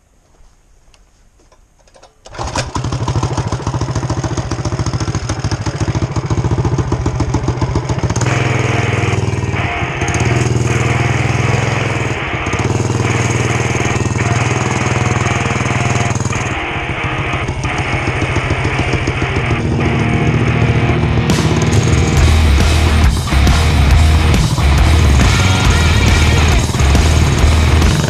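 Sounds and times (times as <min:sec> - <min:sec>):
small motorbike engine: 0:02.3 - 0:28.0.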